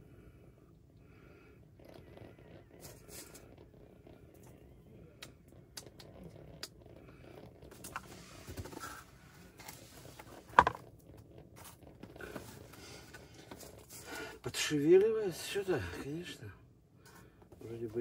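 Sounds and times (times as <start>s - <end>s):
low steady rumble: 0.0s - 18.0s
small clicks and rustles: 0.8s - 14.2s.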